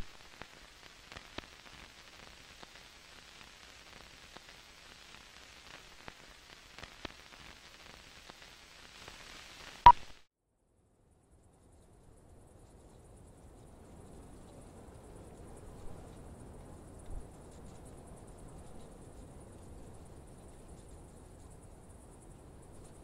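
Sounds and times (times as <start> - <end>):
old film crackle and hiss: 0.0 - 10.3, 12.7 - 23.0.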